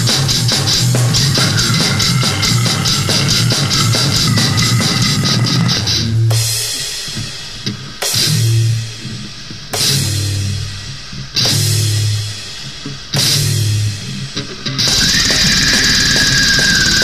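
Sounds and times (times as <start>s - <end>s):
heavy metal band hits: 0.0s - 7.4s, 14.8s - 17.0s.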